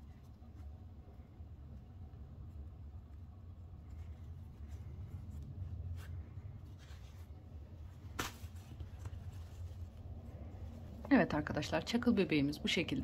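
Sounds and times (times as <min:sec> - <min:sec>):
hands rustling yarn doll: 0:00.0 - 0:13.0
steady low hum: 0:00.0 - 0:13.0.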